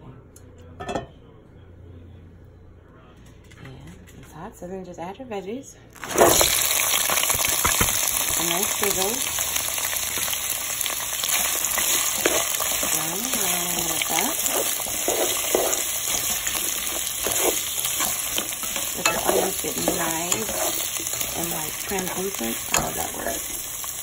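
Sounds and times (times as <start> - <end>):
vegetables sizzling in oil: 6.0 - 24.0
spatula scraping a pan: 10.1 - 24.0.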